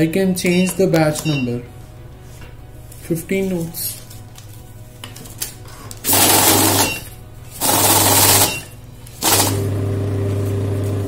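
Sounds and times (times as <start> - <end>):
counting machine riffling banknotes: 6.0 - 9.7
motor hum: 9.2 - 11.0.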